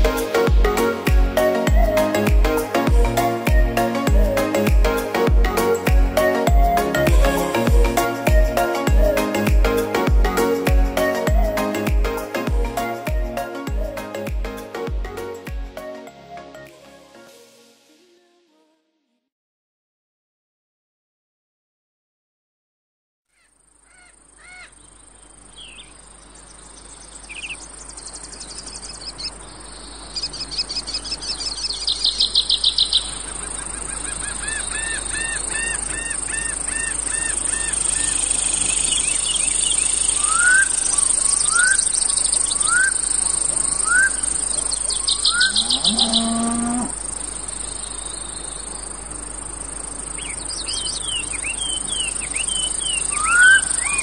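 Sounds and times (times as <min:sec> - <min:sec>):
birds calling and trilling: 0:23.4 - 0:54.0
high insect drone: 0:32.3 - 0:54.0.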